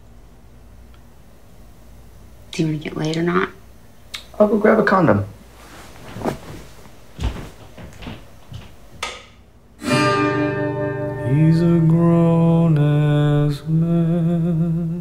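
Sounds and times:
faint knocks and rustles: 5.5s - 9.4s
acoustic guitar: 9.8s - 15.0s
man singing: 11.1s - 15.0s.

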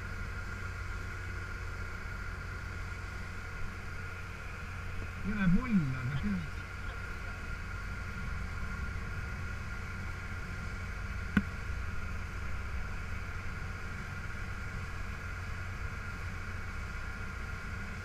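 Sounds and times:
boat engine rumbling and whining: 0.0s - 18.0s.

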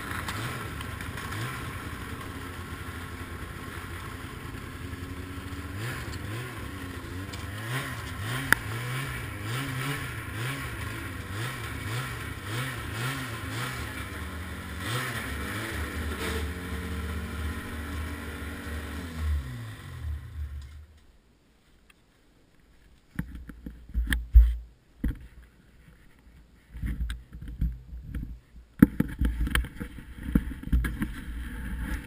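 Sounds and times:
snowmobile engine revving and idling: 0.0s - 20.9s.

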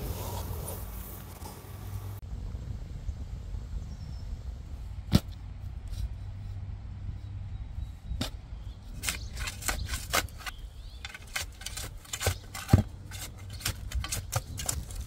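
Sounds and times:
garden hand tools clicking and scraping: 8.2s - 15.0s.

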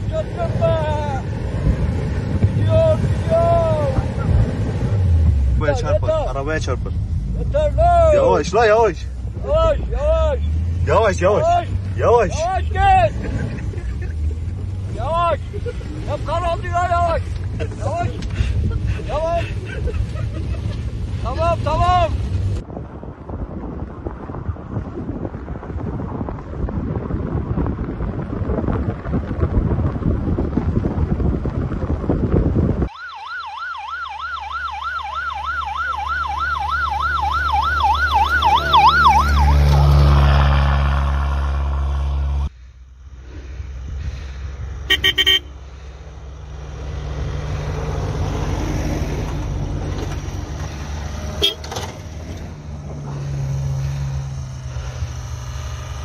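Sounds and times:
wind buffeting microphone: 0.0s - 33.0s
warbling siren: 32.9s - 39.8s.

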